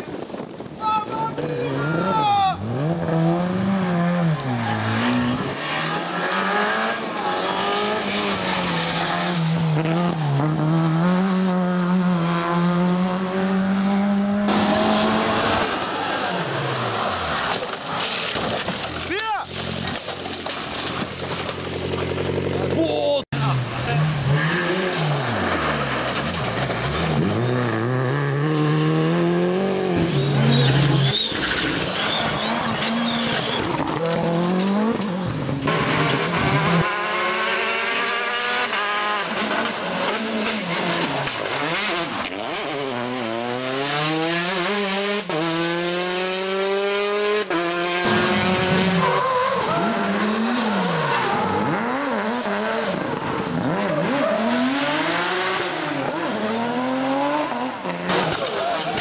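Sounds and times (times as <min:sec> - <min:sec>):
rally car engines revving: 0:00.6 - 0:22.8, 0:23.4 - 0:59.0
tyre squeal: 0:30.0 - 0:34.1, 0:48.9 - 0:52.0.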